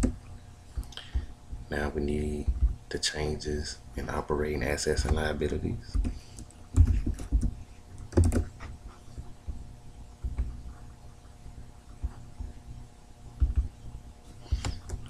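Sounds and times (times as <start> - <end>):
faint steady hum: 0.0 - 15.0
keyboard keystrokes: 6.8 - 8.5.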